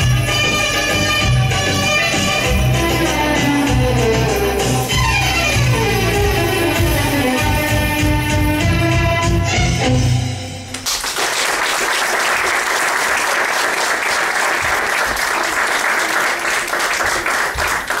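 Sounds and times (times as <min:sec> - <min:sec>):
dance music: 0:00.0 - 0:10.5
audience applause: 0:10.8 - 0:18.0.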